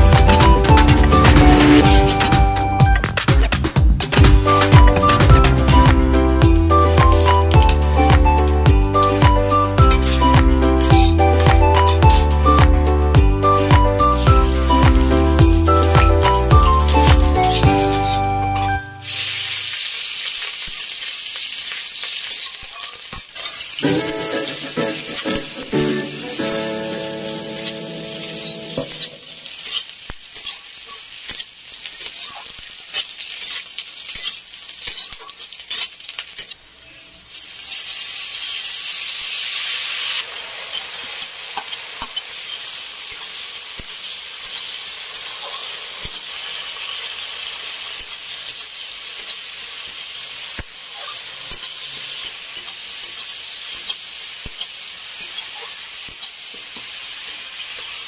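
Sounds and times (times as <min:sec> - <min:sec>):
vegetables sizzling in hot oil: 0:00.0 - 0:03.4, 0:04.1 - 0:58.0
metal spatula scraping pan: 0:26.4 - 0:30.6.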